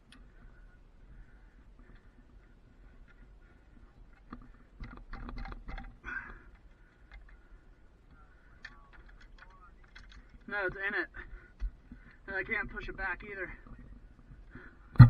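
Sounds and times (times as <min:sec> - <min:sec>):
metal clicks and knocks: 0:04.2 - 0:07.4.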